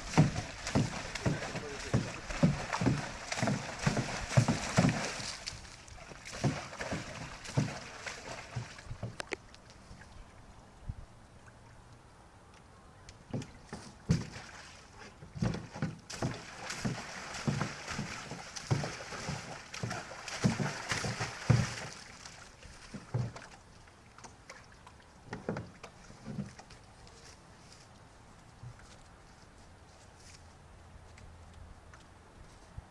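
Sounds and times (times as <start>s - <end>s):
hooves knocking against tank: 0.0s - 5.3s
water sloshing and splashing: 0.0s - 12.0s, 13.2s - 29.0s.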